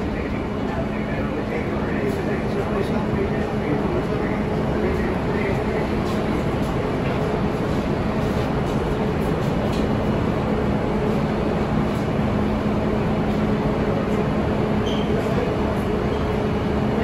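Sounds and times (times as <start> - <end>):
subway train rumbling: 0.0 - 17.0
high squeal: 14.8 - 15.3.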